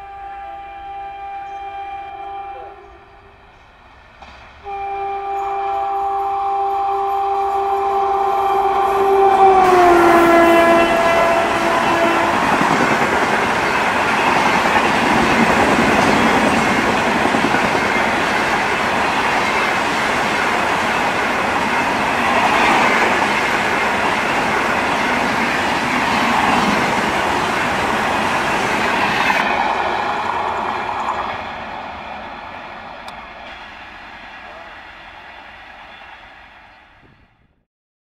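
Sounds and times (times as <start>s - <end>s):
train coaches passing at speed: 0.0s - 37.5s.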